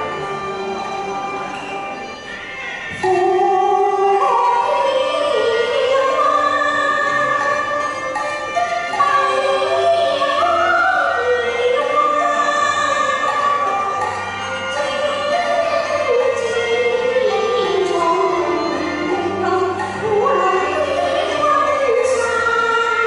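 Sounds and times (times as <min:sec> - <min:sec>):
instrumental backing: 0:00.0 - 0:23.0
woman singing opera-style: 0:03.0 - 0:07.8, 0:09.0 - 0:13.7, 0:14.7 - 0:23.0.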